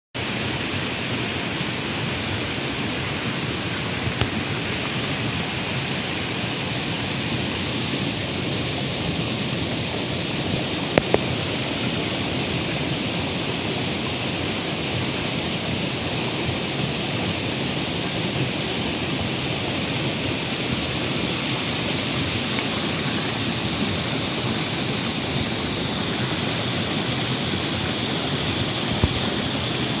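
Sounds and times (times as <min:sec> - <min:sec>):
stream running over stones: 0:00.2 - 0:30.0.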